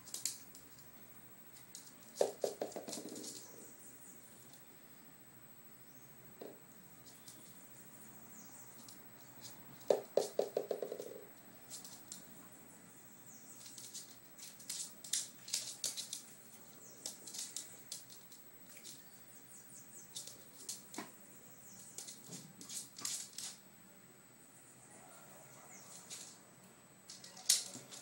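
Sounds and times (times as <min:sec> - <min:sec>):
dog claws clicking on hard floor: 0:01.6 - 0:03.6, 0:13.6 - 0:16.3, 0:16.9 - 0:19.0, 0:21.9 - 0:23.6, 0:27.1 - 0:28.0.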